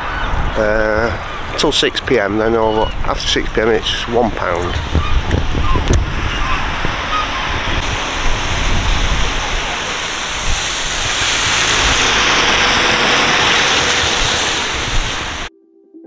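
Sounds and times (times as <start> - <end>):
wind on microphone: 0.0 - 15.5
van driving on wet road: 5.4 - 15.5.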